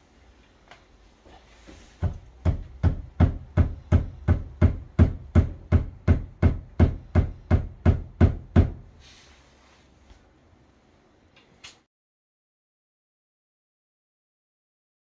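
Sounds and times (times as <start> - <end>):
heavy knocks: 2.0 - 8.9.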